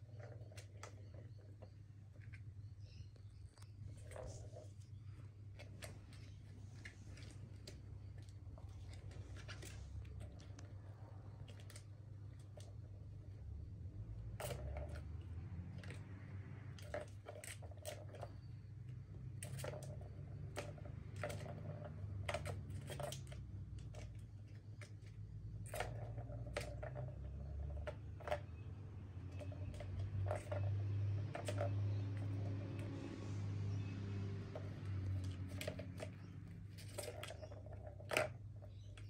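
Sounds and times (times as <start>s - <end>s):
plastic balls clicking in track toy: 14.3s - 39.0s.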